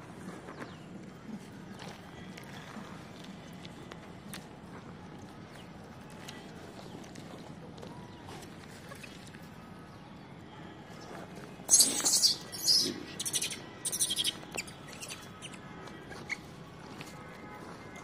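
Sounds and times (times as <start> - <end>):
monkeys squealing: 11.7 - 15.6
faint monkey chirps: 11.7 - 16.5.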